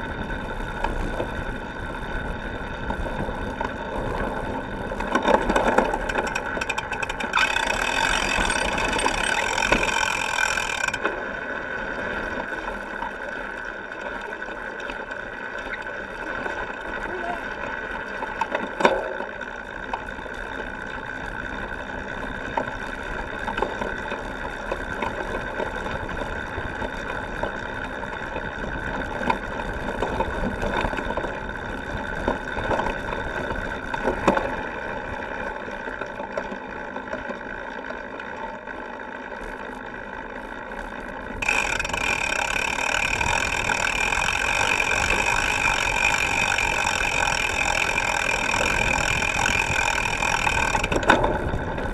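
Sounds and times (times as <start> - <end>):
bike tyre and frame rattle: 0.0 - 51.9
freehub ticking: 0.3 - 11.2, 41.3 - 51.9.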